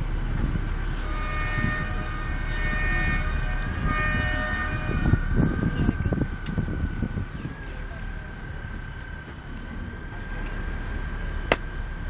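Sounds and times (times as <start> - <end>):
low rumble of moving boat: 0.0 - 12.0
ship horn chord: 0.8 - 6.2.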